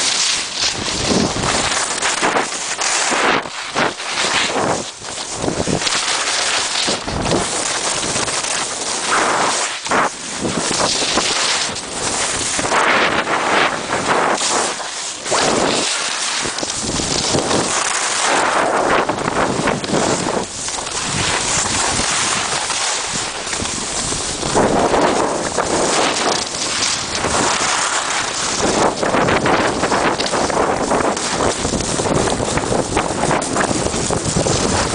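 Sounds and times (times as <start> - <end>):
skis scraping over snow: 0.0 - 34.9
wind rushing over microphone: 0.0 - 34.9.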